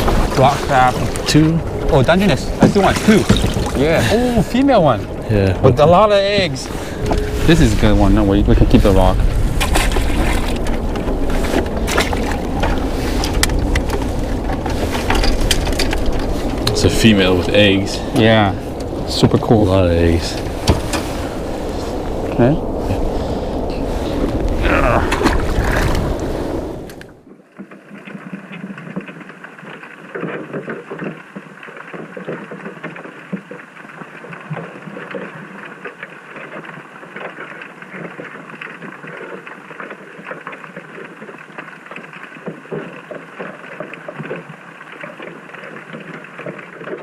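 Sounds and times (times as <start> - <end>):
wind buffeting microphone: 0.0 - 27.3
muffled underwater water noise: 0.0 - 47.0
small underwater clicks and crackles: 0.0 - 47.0.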